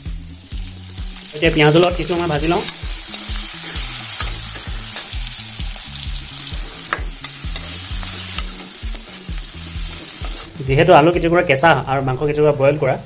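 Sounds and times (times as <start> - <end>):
meat and onions sizzling in a wok: 0.0 - 11.6
low background music: 0.0 - 13.0
metal ladle scraping a pan: 2.5 - 5.2, 6.4 - 9.2.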